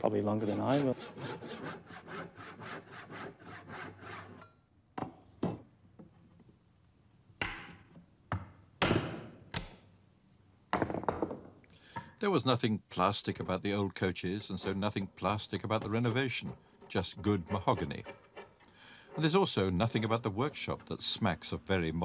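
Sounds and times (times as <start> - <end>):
hand saw cutting timber: 0.1 - 4.4, 14.4 - 21.9.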